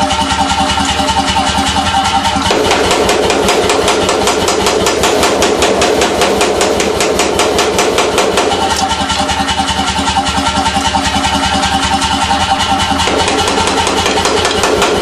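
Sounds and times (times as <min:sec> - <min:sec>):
motor and compressor running: 0:00.0 - 0:15.0
power hammer striking hot steel: 0:02.2 - 0:10.1, 0:12.8 - 0:15.0.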